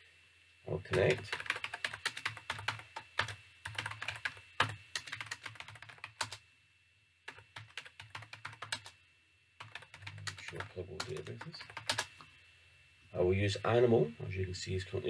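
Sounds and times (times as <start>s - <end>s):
typing on computer keyboard: 0.9s - 6.4s, 7.3s - 9.0s, 9.6s - 12.2s.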